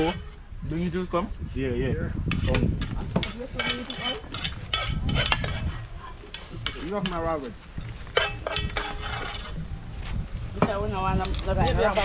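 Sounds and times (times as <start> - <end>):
spoon scraping in a pot: 2.3 - 7.2, 8.1 - 9.6.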